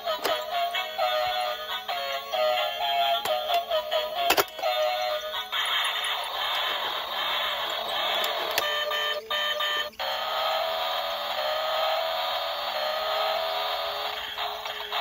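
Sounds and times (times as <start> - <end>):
toy truck buzzy whir: 0.0 - 15.0.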